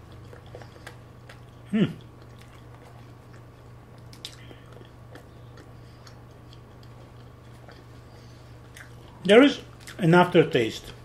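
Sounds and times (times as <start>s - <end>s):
steady low hum: 0.0s - 11.0s
wet mouth clicks from chewing: 0.1s - 8.0s.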